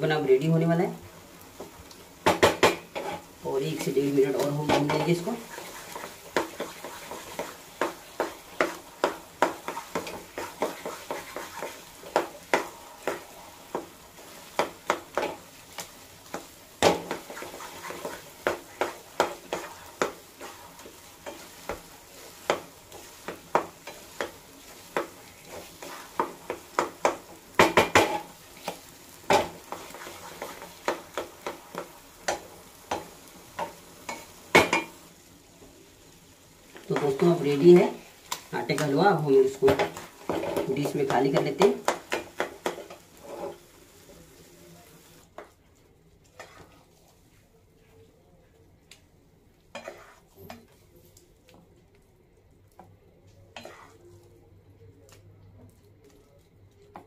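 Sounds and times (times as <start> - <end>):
faint sizzle: 0.0 - 57.0
spatula scraping a pan: 2.6 - 3.3, 4.4 - 35.0, 39.6 - 43.8, 46.2 - 47.4, 49.7 - 50.8, 53.5 - 54.1.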